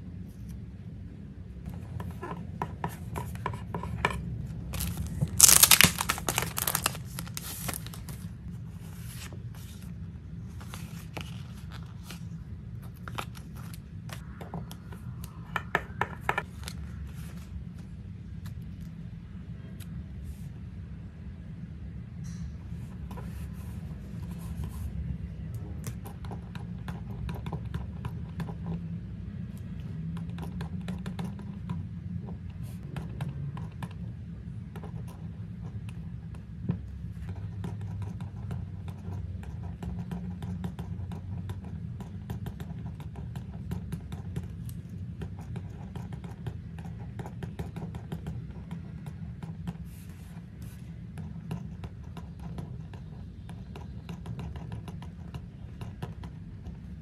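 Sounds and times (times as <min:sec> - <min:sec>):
steady low hum: 0:00.0 - 0:57.0
pen scratching on paper: 0:37.2 - 0:44.5, 0:45.2 - 0:56.8.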